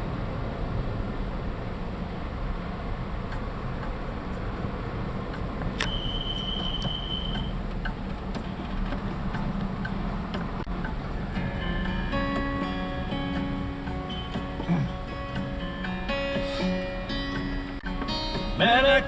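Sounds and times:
vehicle engine and tyre rumble: 0:00.0 - 0:18.7
high steady tone: 0:05.3 - 0:08.6, 0:09.2 - 0:19.0
sharp click: 0:05.4 - 0:11.0.

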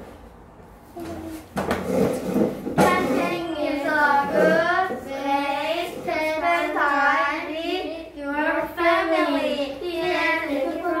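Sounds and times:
children singing: 0:02.8 - 0:11.0.

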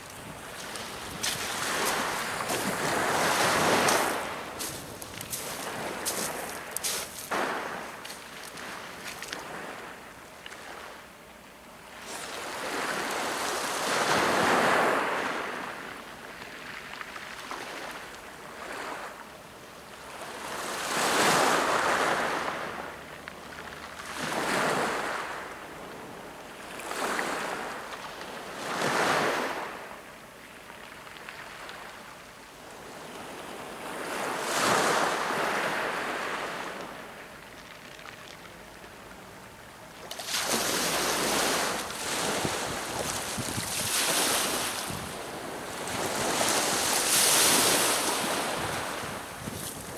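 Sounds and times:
waves washing over pebbles: 0:00.0 - 0:09.8, 0:40.1 - 0:49.9.

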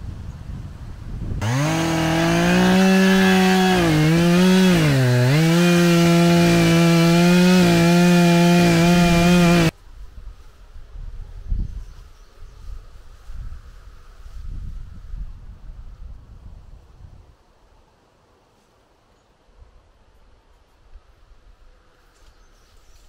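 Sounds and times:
chainsaw cutting log: 0:01.4 - 0:09.7.

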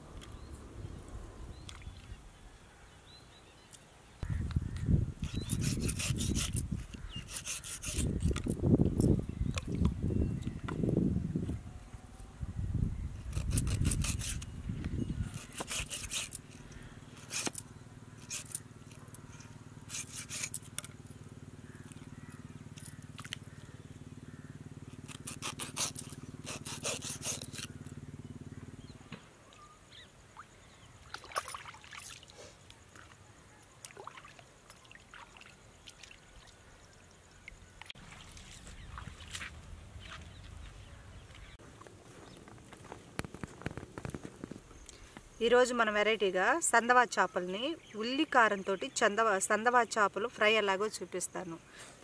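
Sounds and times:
knife scraping fish on stone: 0:05.2 - 0:08.5, 0:13.3 - 0:14.5, 0:15.3 - 0:16.6, 0:17.2 - 0:17.6, 0:19.9 - 0:20.8, 0:25.1 - 0:27.7.

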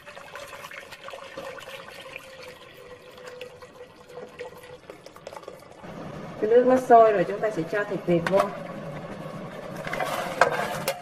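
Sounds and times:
water pouring into a pot: 0:00.0 - 0:05.9.

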